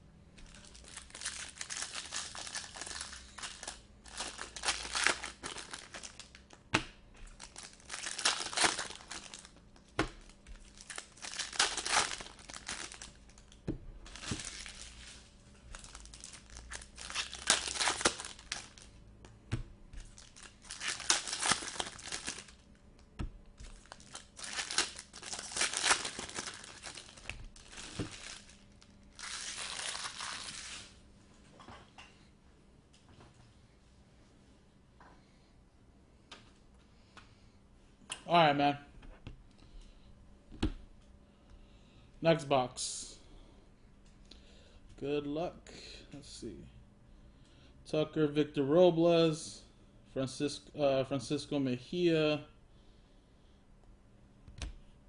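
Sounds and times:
foil wrappers tearing and crinkling: 0.4 - 6.5, 7.3 - 9.5, 10.2 - 13.5, 14.1 - 18.9, 20.0 - 22.6, 23.6 - 31.0.

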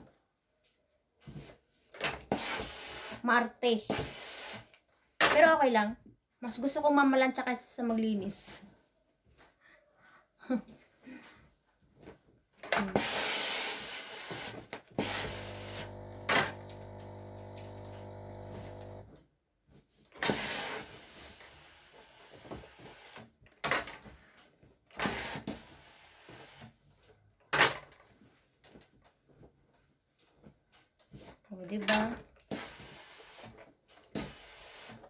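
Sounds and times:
steam iron hissing: 2.3 - 3.2, 3.9 - 4.7, 12.9 - 19.0, 20.3 - 23.2, 34.2 - 35.0
electric buzzing hum: 15.0 - 19.1.

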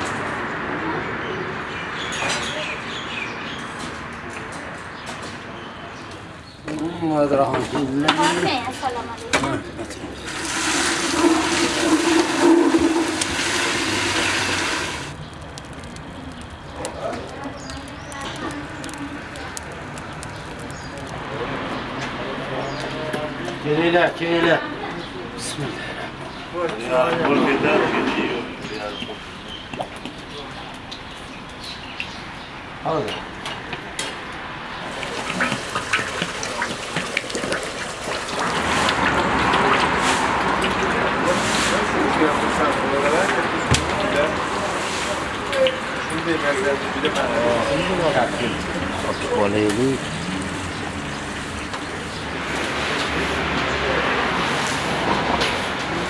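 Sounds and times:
water pouring: 10.1 - 21.2, 34.8 - 54.9
small clicks and knocks: 15.1 - 21.2.

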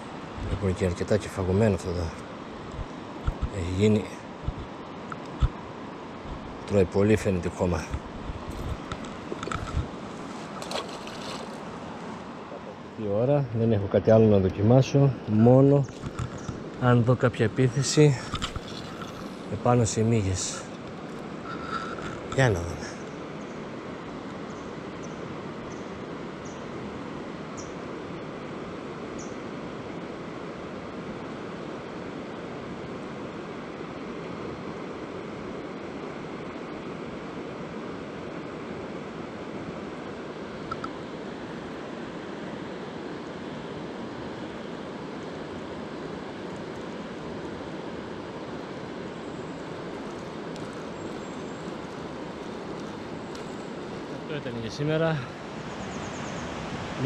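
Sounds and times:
fast river rushing: 0.0 - 13.6, 15.2 - 57.0
faint high ticks: 40.7 - 41.0, 50.0 - 53.6.

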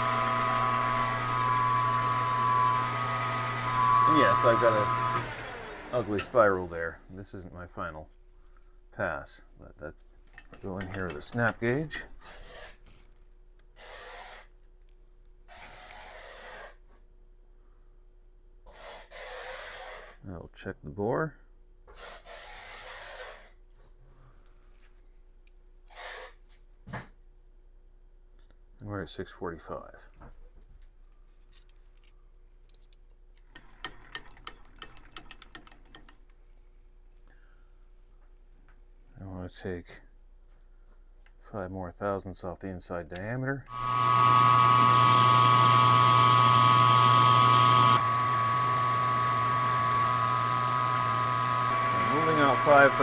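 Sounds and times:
metallic clicks and rattles: 10.2 - 11.7, 31.5 - 36.4
person breathing: 37.2 - 37.9.

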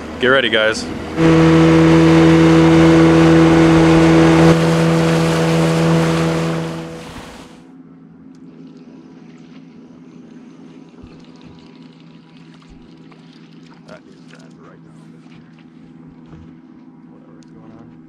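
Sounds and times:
outboard motor running: 0.0 - 7.6.

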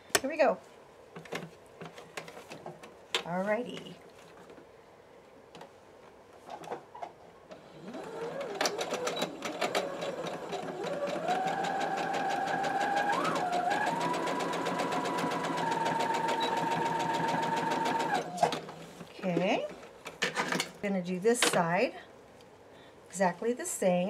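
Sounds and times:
sewing machine motor whine: 7.6 - 18.5.

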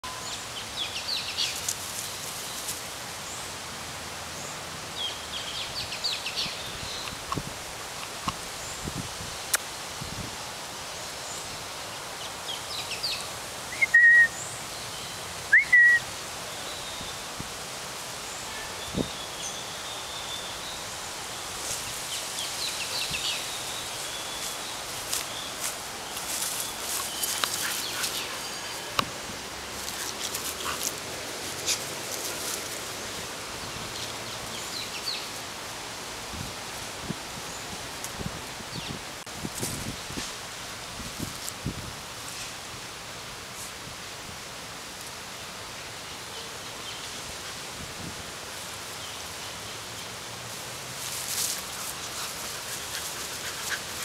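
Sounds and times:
steady outdoor hiss: 0.0 - 54.0.

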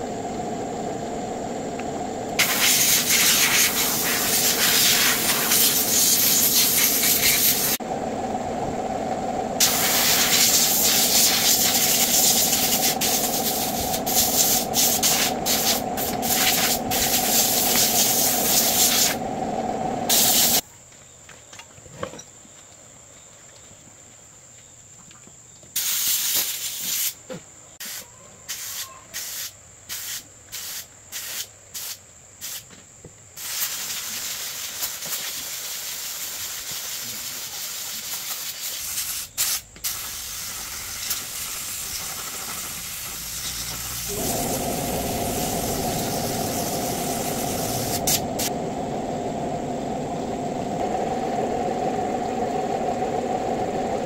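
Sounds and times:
motor humming: 0.0 - 20.6, 40.1 - 54.0
pressurised jet hissing: 0.0 - 20.6, 33.4 - 54.0.

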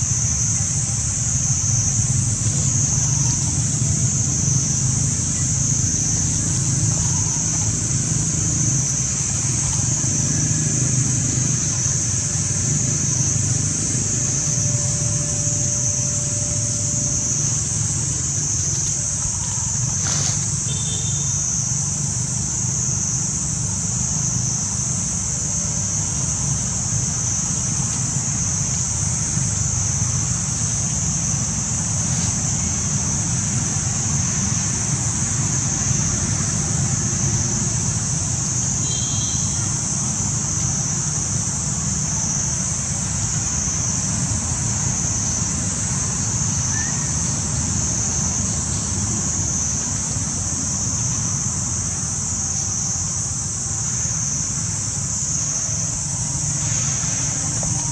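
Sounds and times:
high-pitched insect drone: 0.0 - 57.9.

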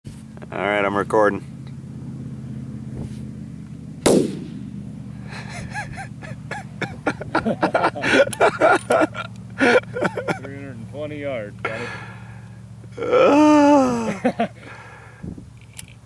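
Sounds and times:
steady low hum: 0.1 - 16.0
rifle shot: 4.0 - 4.8.

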